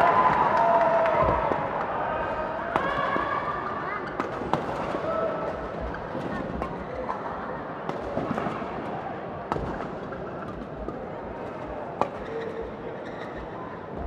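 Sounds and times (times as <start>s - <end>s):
murmur of voices: 0.0s - 14.0s
rackets hitting shuttlecock: 4.0s - 7.2s, 9.5s - 12.6s.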